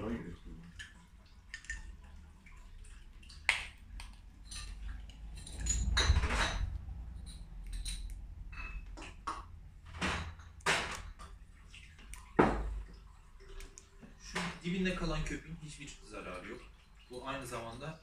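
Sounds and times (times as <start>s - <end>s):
glass bottles clinking: 4.4s - 11.4s.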